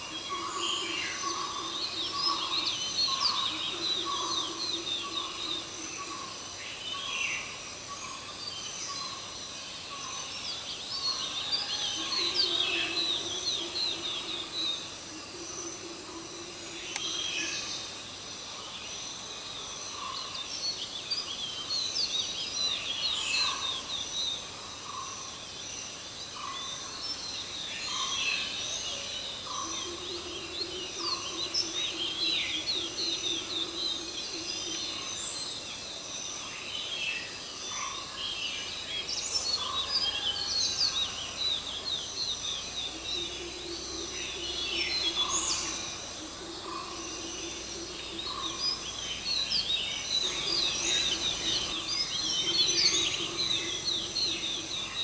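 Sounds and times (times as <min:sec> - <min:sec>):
small birds chirping: 0:36.8 - 0:55.0.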